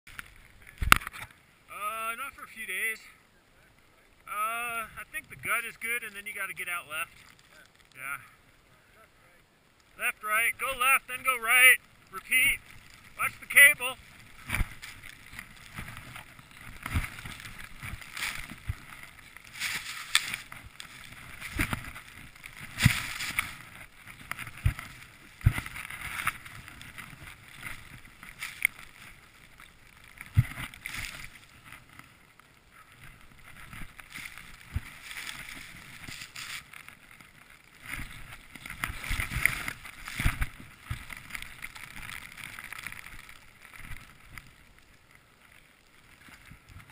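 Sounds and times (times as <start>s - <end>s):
skis swishing through snow: 10.0s - 32.2s, 32.8s - 44.6s.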